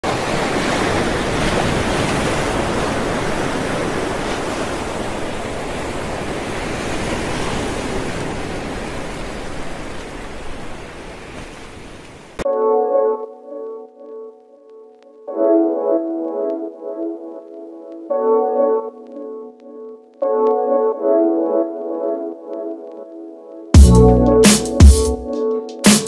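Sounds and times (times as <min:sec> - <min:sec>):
surf breaking on a beach: 0:00.0 - 0:12.4
music with held notes: 0:12.4 - 0:26.0.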